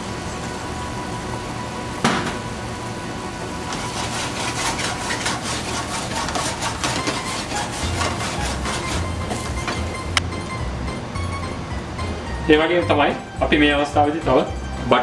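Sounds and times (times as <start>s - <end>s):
wooden spoon scraping a steel pan: 3.7s - 10.1s.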